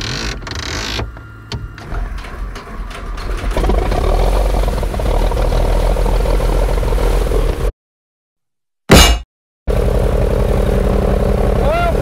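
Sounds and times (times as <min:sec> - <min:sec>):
engine starter cranking: 0:01.8 - 0:05.8
piston engine running loudly: 0:09.7 - 0:12.0.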